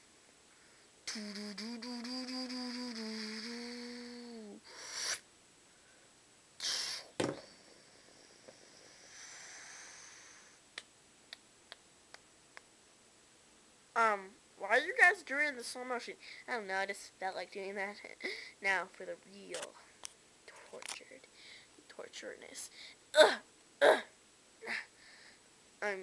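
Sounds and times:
person humming low note: 1.0 - 4.9
short breathy hiss: 4.6 - 10.6.

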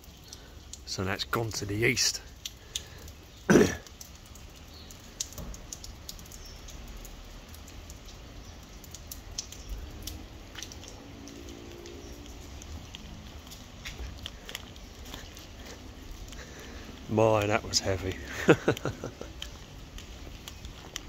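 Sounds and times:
water dripping: 0.0 - 21.0
person coughing: 3.5 - 3.9.

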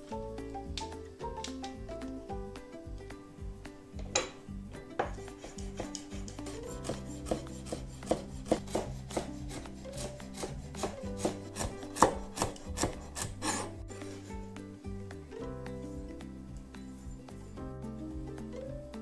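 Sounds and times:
soft background music: 0.0 - 19.0
knife chopping on wooden board: 5.0 - 13.8.

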